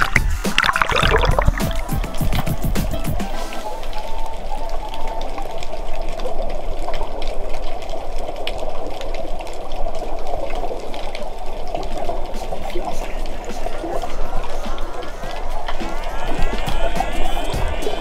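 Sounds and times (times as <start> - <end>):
underwater rushing: 0.0 - 18.0
fine crackling ticks: 3.8 - 17.1.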